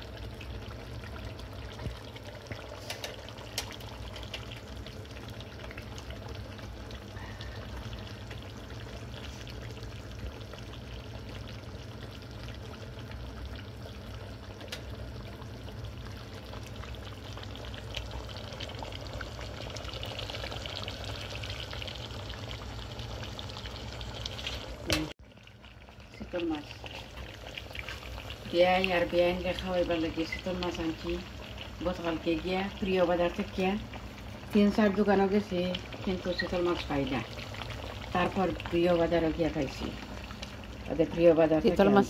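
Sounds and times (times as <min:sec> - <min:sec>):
fish sizzling in oil: 0:00.0 - 0:42.0.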